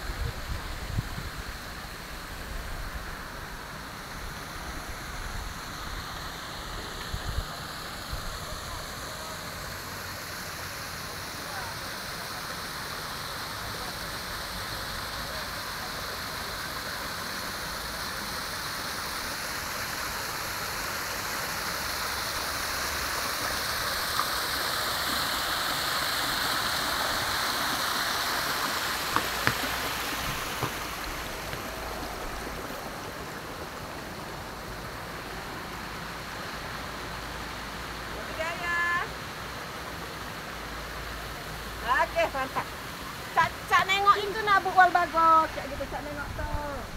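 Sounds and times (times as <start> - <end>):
water splashing down waterfall: 0.0 - 46.9.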